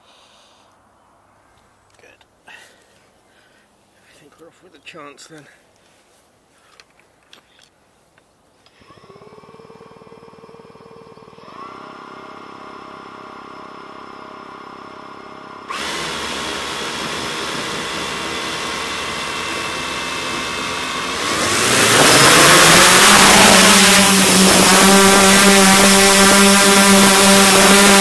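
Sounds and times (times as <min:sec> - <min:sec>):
drone motors whining: 0:08.8 - 0:28.0.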